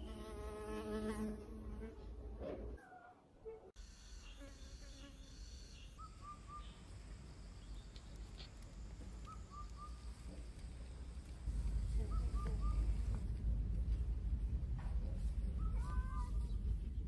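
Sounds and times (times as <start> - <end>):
low rumble: 9.9 - 17.0.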